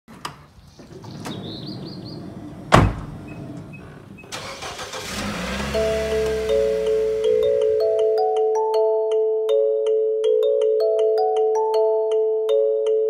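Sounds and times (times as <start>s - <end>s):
door clicks: 0.1s - 4.4s
car engine rumbling: 0.2s - 8.2s
car door slam: 1.4s - 4.4s.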